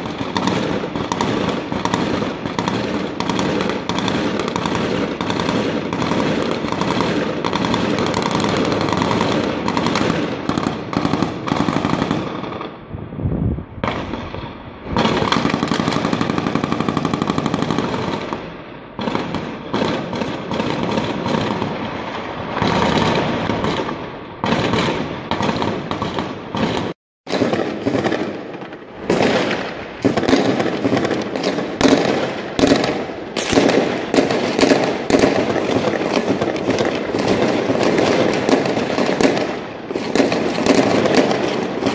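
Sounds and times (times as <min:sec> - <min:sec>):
automatic gunfire: 0:00.0 - 0:12.4, 0:22.6 - 0:41.9.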